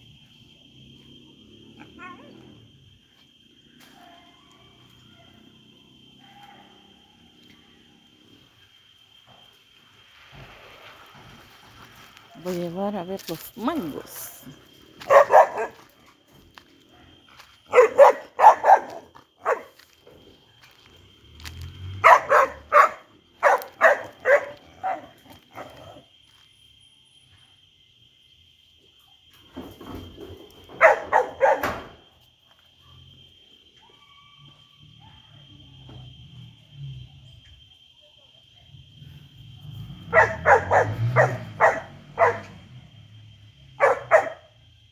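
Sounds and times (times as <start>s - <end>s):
dog barking: 3.9s - 4.4s, 5.1s - 5.5s, 6.2s - 7.8s, 15.0s - 15.9s, 16.9s - 19.8s, 22.0s - 26.0s, 30.7s - 31.8s, 35.0s - 35.6s, 40.0s - 42.6s, 43.8s - 44.6s.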